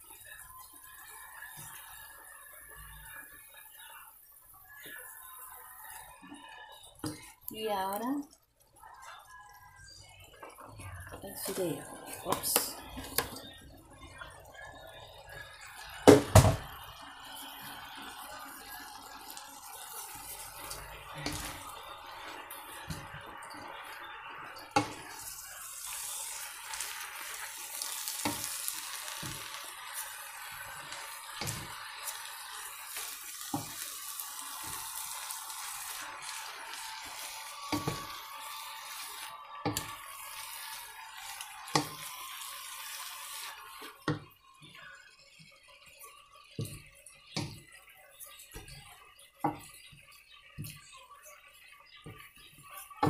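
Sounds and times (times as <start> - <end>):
noodles sizzling in a wok: 0.0 - 53.0.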